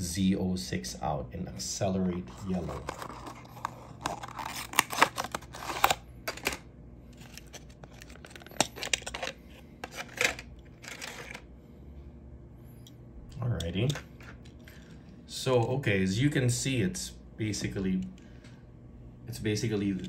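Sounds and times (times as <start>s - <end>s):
cardboard and plastic packaging rustling: 2.1s - 11.4s.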